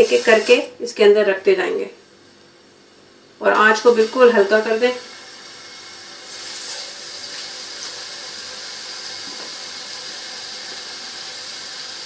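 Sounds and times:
meat sizzling in a pan: 0:00.0 - 0:00.7, 0:03.6 - 0:12.0.

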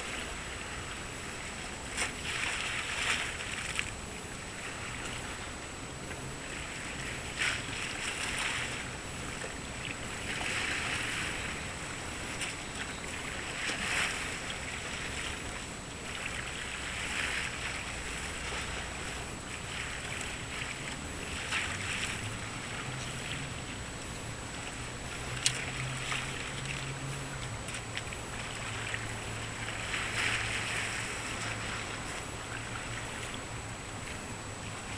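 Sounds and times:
low engine hum: 0:00.0 - 0:34.9
water lapping against quay: 0:00.0 - 0:34.9.

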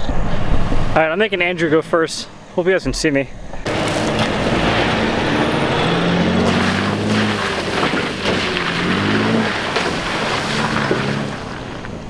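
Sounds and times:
truck engine revving: 0:03.6 - 0:12.0.

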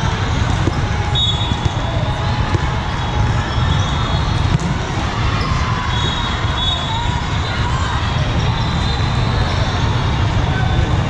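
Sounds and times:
volleyballs bouncing and struck: 0:00.0 - 0:07.3
crowd noise: 0:00.0 - 0:11.0.

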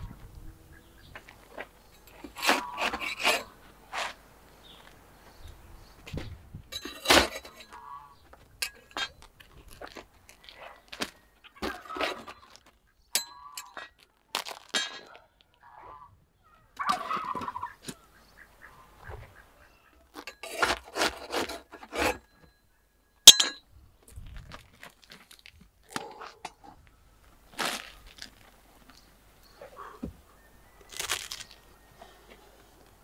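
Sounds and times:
steel hooks scraping clay: 0:02.0 - 0:03.6, 0:06.7 - 0:07.9, 0:08.6 - 0:10.6, 0:11.6 - 0:14.0, 0:20.1 - 0:22.5, 0:23.2 - 0:23.6
crust crackling: 0:13.6 - 0:15.6, 0:24.0 - 0:29.1, 0:30.8 - 0:31.7.

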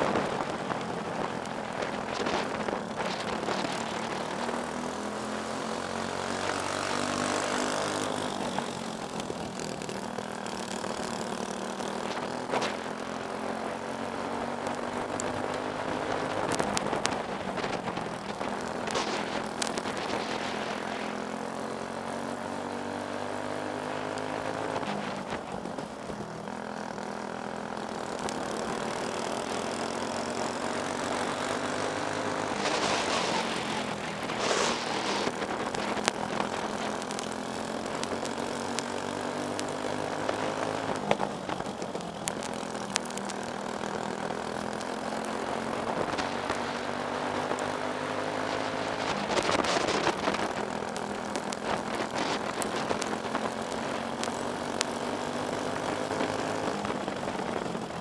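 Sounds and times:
kart engine racing: 0:00.0 - 0:58.0
short rushes of noise: 0:32.4 - 0:36.6.

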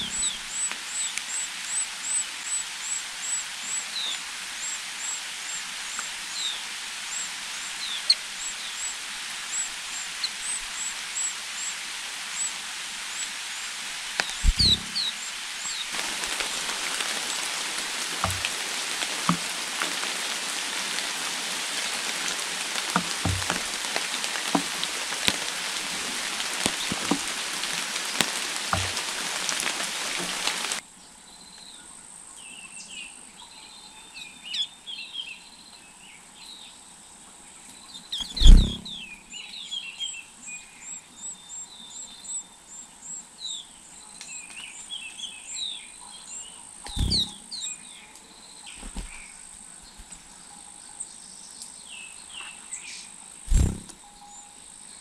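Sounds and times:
high thin bird chirps: 0:00.0 - 0:06.6, 0:14.2 - 0:30.7, 0:38.1 - 0:39.2, 0:46.8 - 0:47.8
even hiss: 0:00.0 - 0:30.8, 0:38.2 - 0:39.2, 0:46.8 - 0:48.0, 0:51.6 - 0:54.1
dull knocks: 0:18.2 - 0:18.6, 0:22.9 - 0:25.4.

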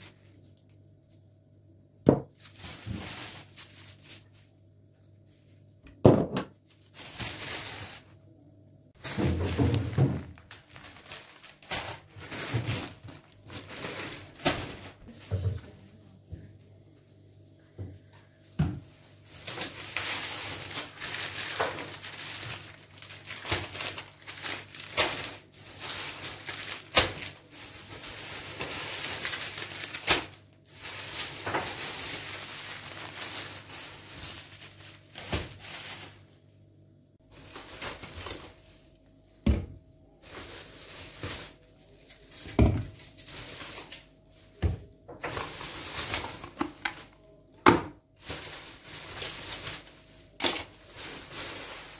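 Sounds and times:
plastic bags rustling: 0:00.0 - 0:01.4, 0:02.1 - 0:05.8, 0:06.5 - 0:08.3, 0:08.9 - 0:16.0, 0:18.8 - 0:51.9
items knocking on counter: 0:02.0 - 0:02.4, 0:05.9 - 0:06.6, 0:39.4 - 0:39.8, 0:42.5 - 0:42.9.

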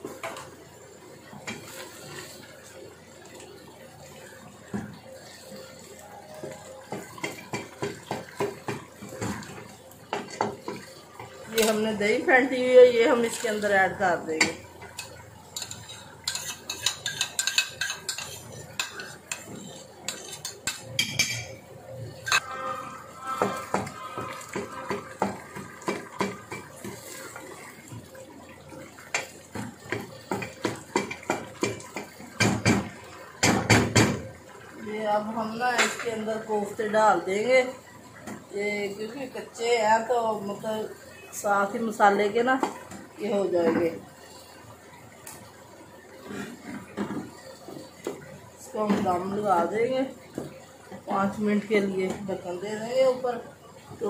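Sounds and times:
faint sizzle: 0:00.0 - 0:54.0
food bubbling in oil: 0:00.0 - 0:54.0
wooden spoon knocking on a pot: 0:06.9 - 0:09.5, 0:23.4 - 0:26.7
wooden spoon scraping a pot: 0:15.0 - 0:20.9, 0:46.2 - 0:47.1.

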